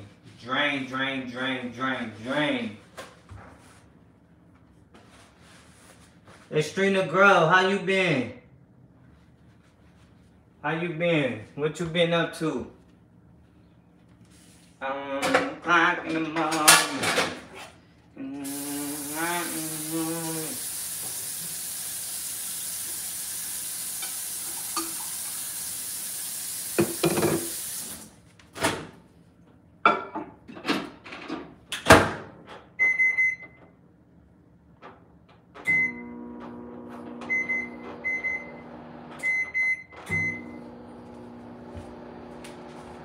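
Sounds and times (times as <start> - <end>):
microwave oven humming: 18.4 - 26.8, 35.6 - 43.0
microwave keypad beeps: 32.8 - 33.6, 37.2 - 38.6, 39.2 - 40.6.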